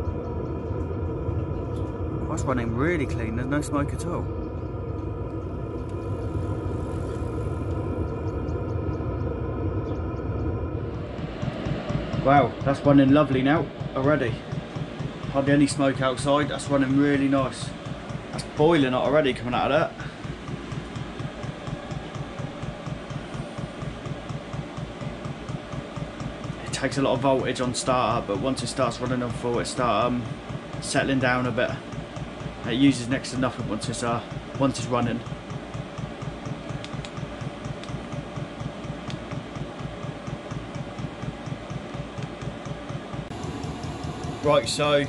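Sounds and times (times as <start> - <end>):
heater blower and burner pulsing: 0.0 - 45.0
fuel pump ticking: 11.1 - 45.0
faint regular ticks: 28.3 - 44.4.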